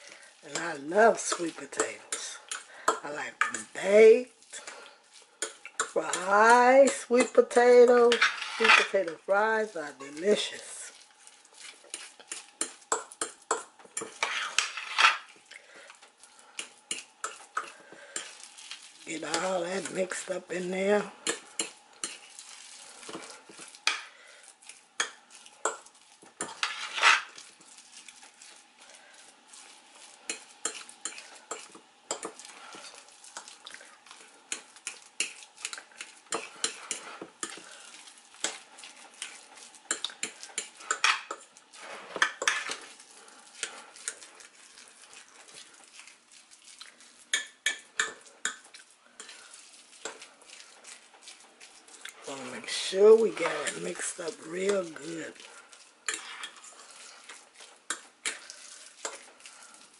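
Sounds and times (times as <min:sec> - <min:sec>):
fork scraping glass dish: 0:08.1 - 0:08.9, 0:11.9 - 0:15.3, 0:26.4 - 0:27.3, 0:56.1 - 0:57.3.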